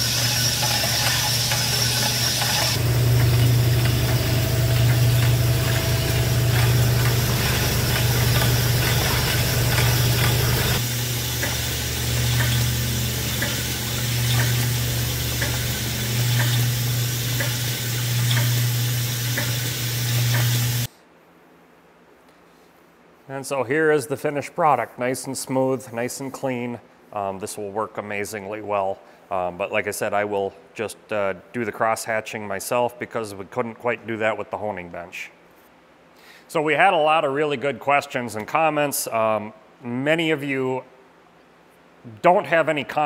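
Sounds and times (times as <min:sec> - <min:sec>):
machine hum: 0:00.0 - 0:20.9
stones scraping metal bore: 0:00.0 - 0:20.9.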